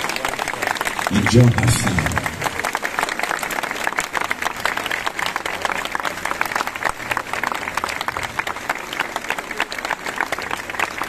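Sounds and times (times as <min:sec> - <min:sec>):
crowd applauding: 0:00.0 - 0:11.0.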